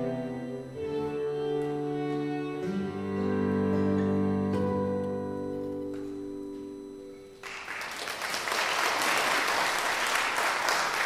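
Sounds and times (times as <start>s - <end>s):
violin cello and guitar trio: 0.0s - 6.9s
audience applause: 7.4s - 11.0s.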